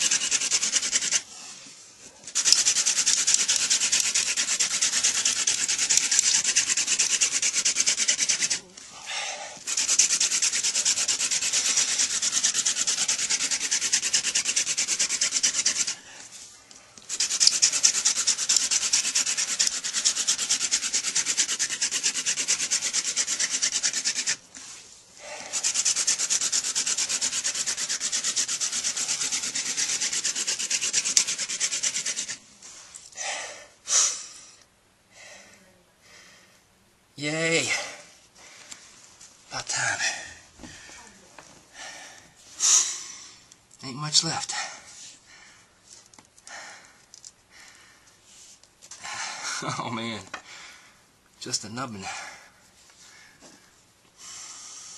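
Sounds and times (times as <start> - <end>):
wooden spindle rubbing hiss: 0.0 - 1.4, 2.3 - 34.6.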